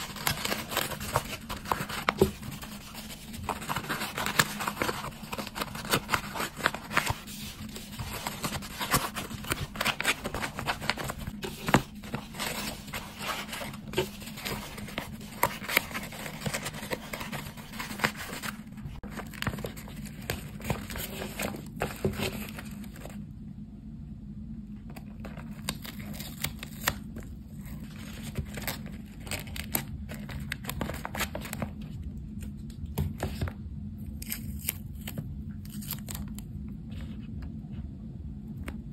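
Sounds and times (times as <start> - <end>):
tissue paper crinkling and tearing: 0.0 - 23.1
steady low hum: 0.0 - 38.9.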